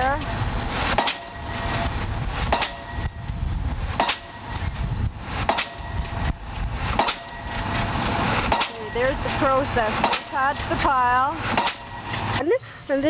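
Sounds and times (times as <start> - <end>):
low steady rumble: 0.0 - 13.0
pile driver hammer blows: 0.8 - 1.7, 2.4 - 3.2, 3.9 - 4.7, 5.4 - 12.4.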